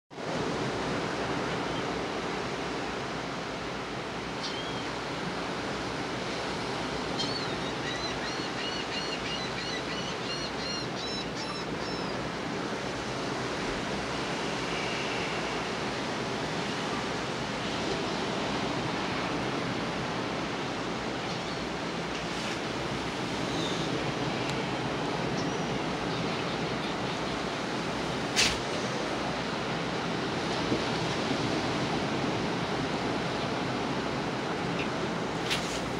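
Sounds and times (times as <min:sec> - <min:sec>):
ocean surf washing on beach: 0:00.2 - 0:35.9.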